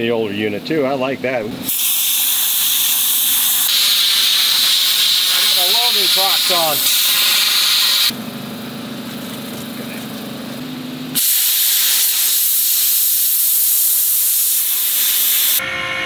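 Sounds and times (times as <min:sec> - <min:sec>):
plasma cutter arc hissing: 0:01.6 - 0:08.1, 0:11.2 - 0:15.6.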